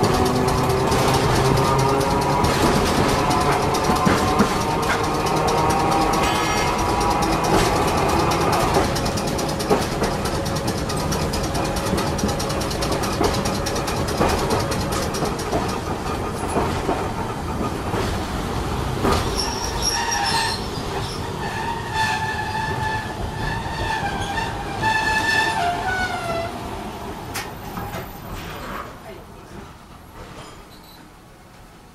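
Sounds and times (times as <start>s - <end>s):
clicks from rails: 0.0s - 17.0s
tram rumbling: 0.0s - 31.9s
high metallic brake squeal: 6.2s - 7.0s, 19.3s - 26.2s, 30.5s - 31.1s.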